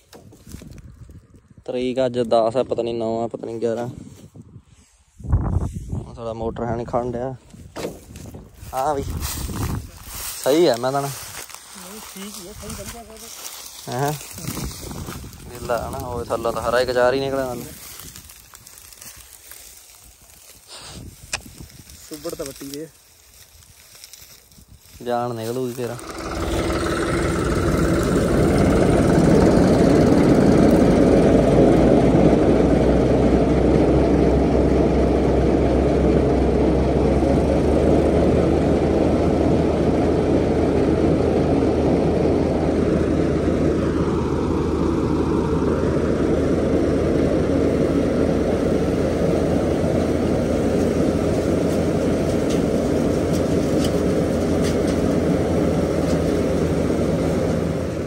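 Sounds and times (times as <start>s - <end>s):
reaper chopping and blowing straw: 7.7s - 58.0s
tractor engine running under load: 7.9s - 22.9s, 24.6s - 58.0s.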